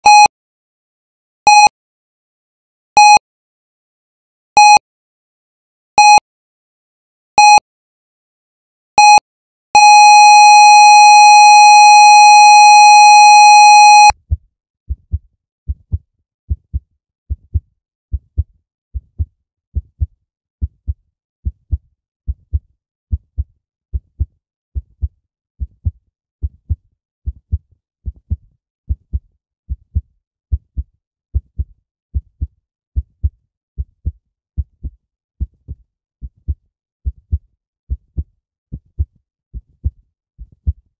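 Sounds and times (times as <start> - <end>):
heart monitor beeps: 0.0 - 0.3, 1.5 - 1.7, 3.0 - 3.2, 4.6 - 4.8, 6.0 - 6.2, 7.4 - 7.6, 9.0 - 9.2, 9.8 - 14.2
flatline tone: 9.8 - 14.1
heartbeat: 14.1 - 40.9.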